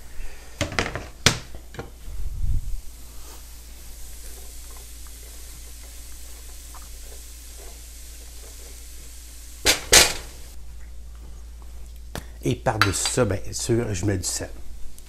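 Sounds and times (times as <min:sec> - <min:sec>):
vegetables sizzling in a pan: 0:01.7 - 0:10.6.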